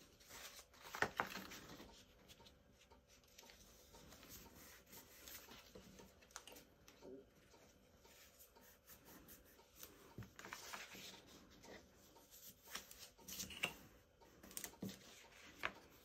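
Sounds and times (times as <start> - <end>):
paper crackling: 0.1 - 1.8
cardstock rustling and creasing: 0.1 - 2.4.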